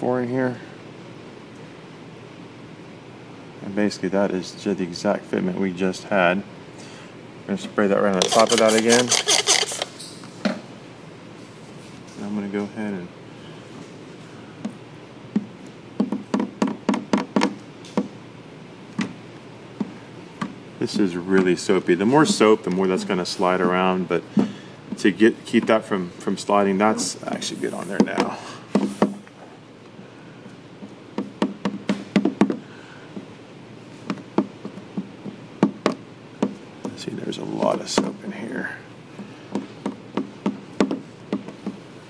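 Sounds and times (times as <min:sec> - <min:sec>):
sharp taps and knocks: 0:14.6 - 0:18.1, 0:39.2 - 0:41.8.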